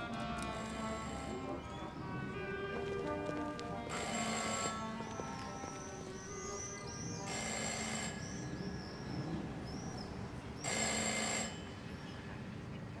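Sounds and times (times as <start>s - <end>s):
telephone-like bell ringing: 3.9s - 4.8s, 7.3s - 8.2s, 10.6s - 11.8s.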